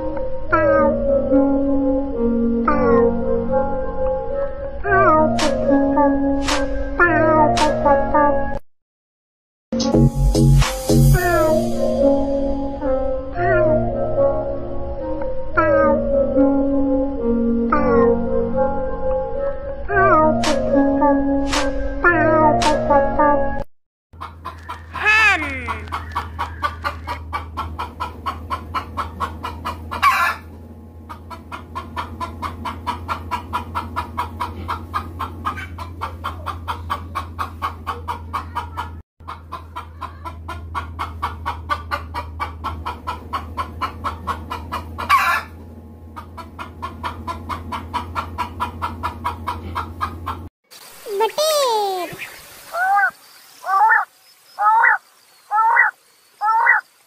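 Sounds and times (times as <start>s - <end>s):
hens clucking: 24.2s - 50.5s, 52.1s - 56.8s.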